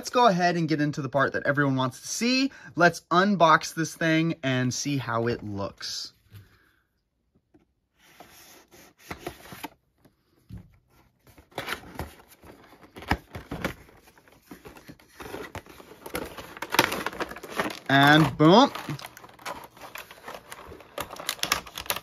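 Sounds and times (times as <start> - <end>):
cardboard and plastic scraping: 8.0 - 22.0.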